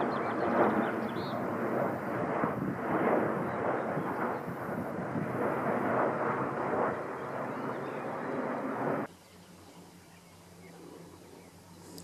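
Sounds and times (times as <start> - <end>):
wind buffeting microphone: 0.0 - 9.1.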